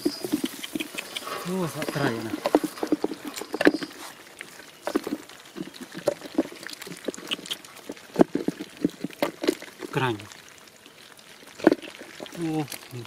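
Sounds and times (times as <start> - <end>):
fish flopping on mud: 0.0 - 13.0.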